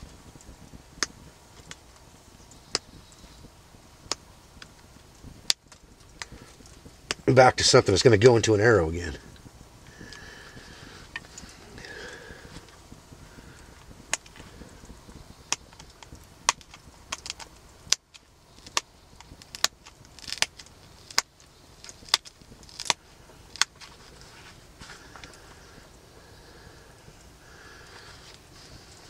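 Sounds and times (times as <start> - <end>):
sharp clicks of stone flaking: 9.3 - 25.6.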